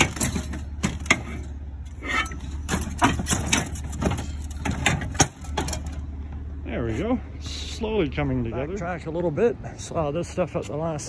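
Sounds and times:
scrap metal clattering: 0:00.0 - 0:06.1
vehicle engine idling: 0:00.0 - 0:11.0.

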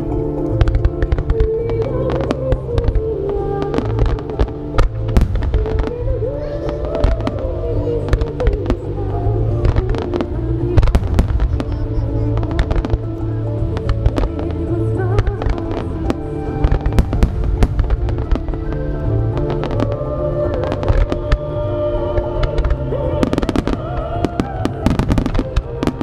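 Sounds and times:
fireworks bursting with sharp bangs: 0:00.0 - 0:26.0
music: 0:00.0 - 0:26.0.

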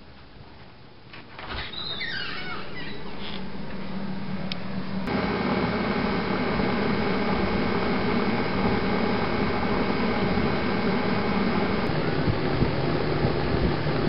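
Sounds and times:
mechanical hum with rushing: 0:02.8 - 0:14.0.

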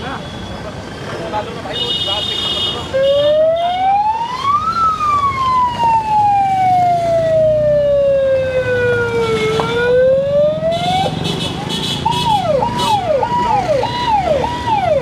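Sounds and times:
engine and traffic noise: 0:00.0 - 0:15.0
wailing siren: 0:03.1 - 0:11.2, 0:12.2 - 0:15.0.

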